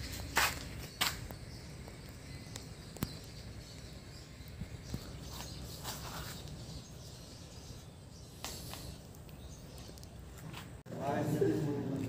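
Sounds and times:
faint footsteps: 0.0s - 1.5s, 4.6s - 6.9s, 8.3s - 12.0s.

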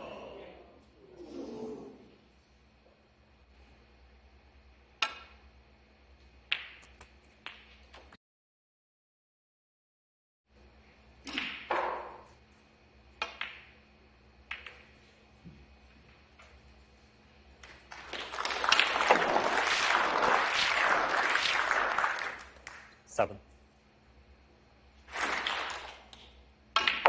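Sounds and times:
snooker balls clicking: 4.9s - 5.5s, 6.5s - 8.2s, 13.2s - 13.8s, 14.4s - 16.6s, 25.4s - 27.0s
audience applause: 17.9s - 22.8s, 25.1s - 25.9s.

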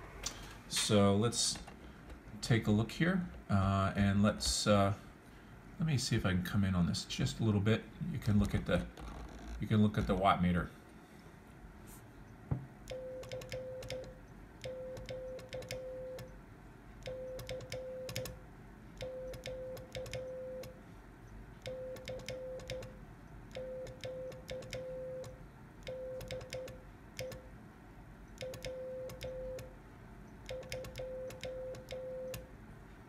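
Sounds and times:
morse code beeps: 12.9s - 16.4s, 17.0s - 18.4s, 19.0s - 20.8s, 21.7s - 23.0s, 23.6s - 27.4s, 28.4s - 29.7s, 30.5s - 32.5s
keying clicks: 17.0s - 18.4s, 19.0s - 20.8s, 21.6s - 27.4s, 30.4s - 32.5s.

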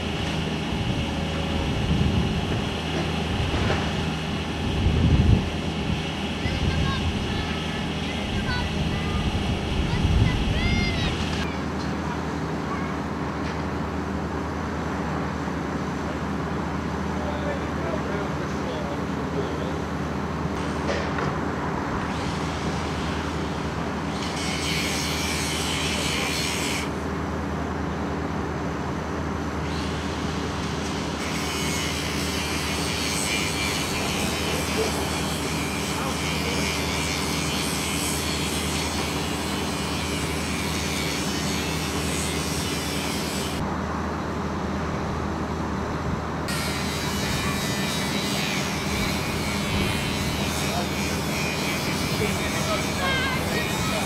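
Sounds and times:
engine running with low hum: 0.0s - 54.0s.

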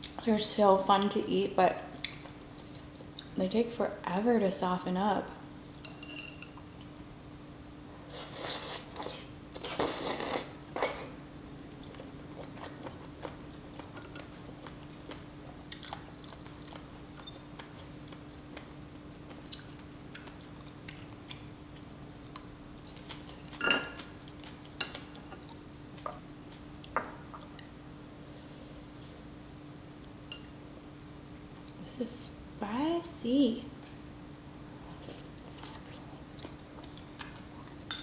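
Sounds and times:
chewing with wet mouth clicks: 2.0s - 3.4s, 11.7s - 27.8s, 34.8s - 37.8s
slurping noodle: 8.1s - 10.6s.

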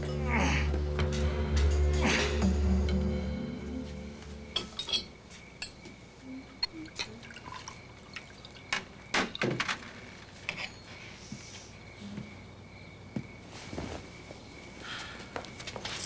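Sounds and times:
glassware clinking: 4.5s - 5.8s, 6.6s - 8.5s
liquid splashing into glass: 6.8s - 9.4s.

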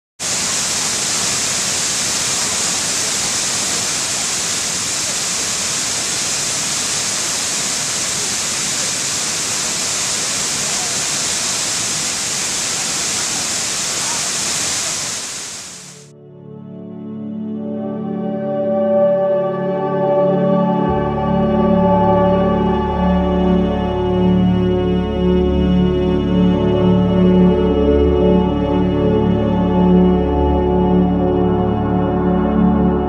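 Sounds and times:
waterfall rushing: 0.2s - 16.1s.

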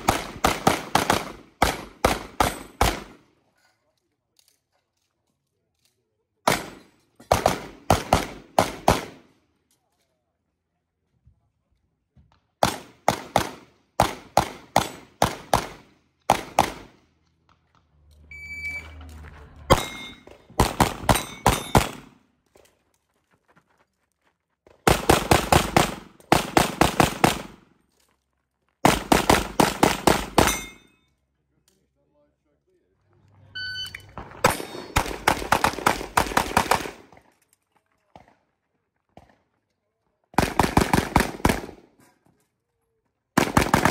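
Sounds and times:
rapid pistol shots: 0.0s - 3.2s, 6.5s - 9.2s, 12.6s - 17.0s, 19.7s - 22.1s, 24.9s - 27.6s, 28.8s - 30.6s, 34.4s - 37.2s, 40.4s - 41.9s, 43.4s - 43.9s
short electronic beep: 18.3s - 19.0s, 33.5s - 34.2s.

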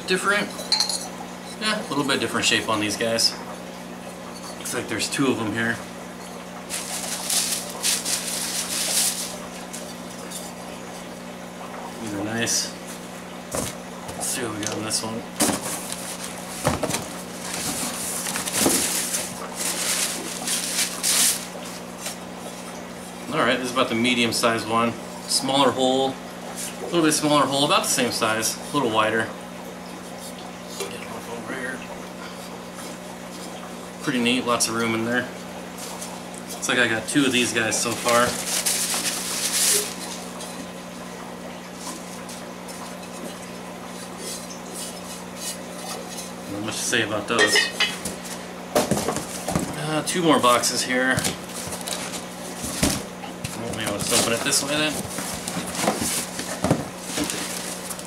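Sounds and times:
cardboard and plastic rustling: 6.6s - 10.6s, 13.5s - 22.3s, 37.2s - 40.7s, 48.0s - 58.0s.

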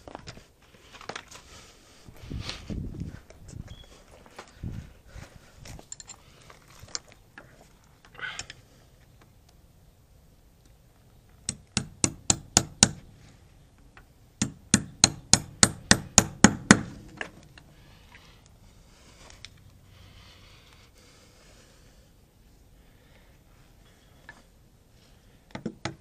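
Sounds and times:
hammer striking nail: 11.5s - 13.0s, 14.4s - 17.0s.

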